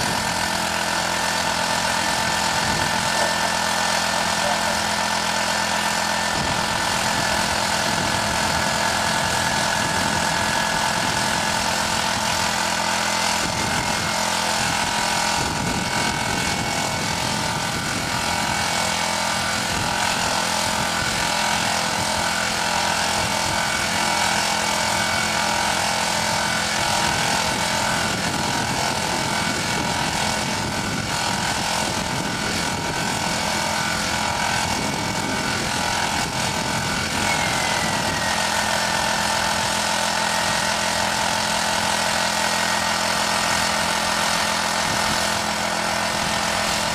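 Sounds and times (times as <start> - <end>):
small pump engine running: 0.0 - 46.9.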